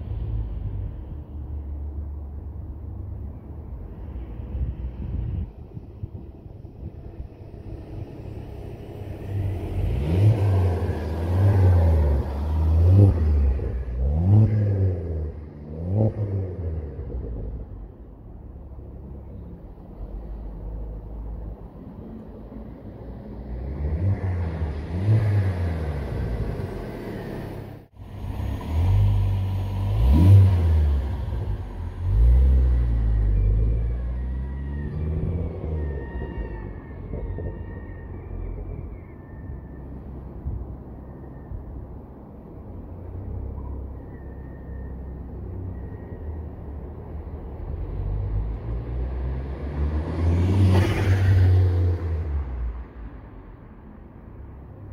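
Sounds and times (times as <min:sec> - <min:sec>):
car engine revving: 0:08.2 - 0:17.9, 0:23.5 - 0:35.8.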